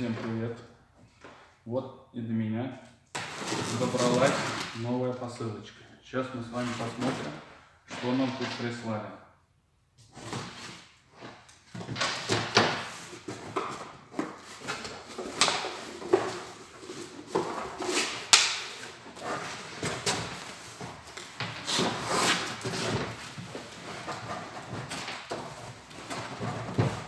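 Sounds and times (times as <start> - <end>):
packing tape tearing: 3.2 - 4.8
cardboard scraping and knocking: 11.7 - 27.0.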